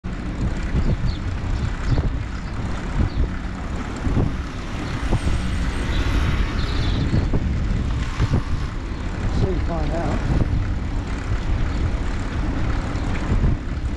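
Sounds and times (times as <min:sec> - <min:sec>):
tyres rumbling on tarmac: 0:00.0 - 0:13.9
wind on microphone: 0:00.1 - 0:13.9.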